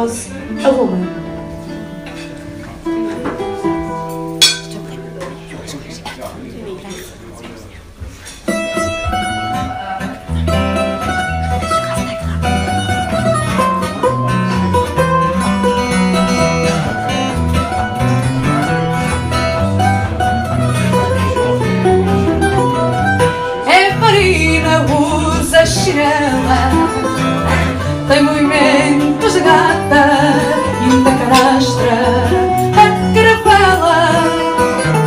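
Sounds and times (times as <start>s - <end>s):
plucked guitar melody: 0.5s - 5.5s, 8.5s - 35.0s
classical guitar bass line: 8.5s - 35.0s
woman singing: 23.6s - 27.3s, 27.9s - 35.0s.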